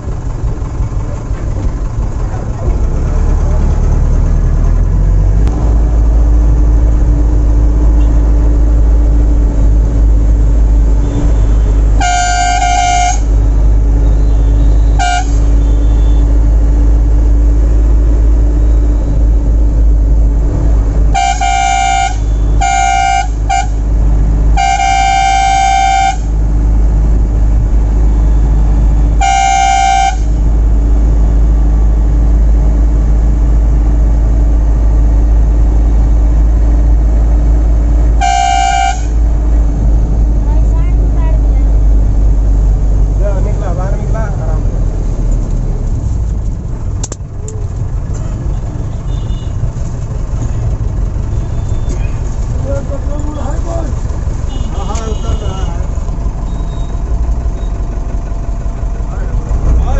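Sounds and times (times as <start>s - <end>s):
bus engine droning: 0.0s - 59.9s
bus horn honking: 10.8s - 16.4s, 21.1s - 26.6s, 28.0s - 30.8s, 38.1s - 39.5s, 47.5s - 49.8s, 51.3s - 52.2s, 54.4s - 57.0s.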